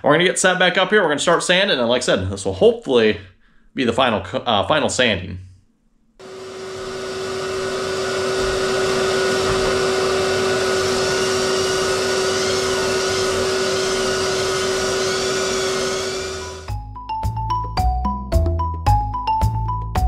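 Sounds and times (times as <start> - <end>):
drywall sander and vacuum hum: 6.2 - 16.8.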